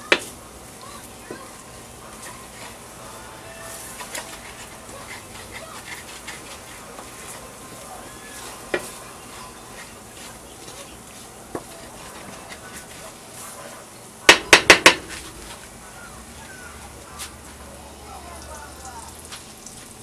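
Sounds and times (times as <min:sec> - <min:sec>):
light sizzle: 0:00.0 - 0:20.0
wooden spoon scraping skillet: 0:01.0 - 0:13.9.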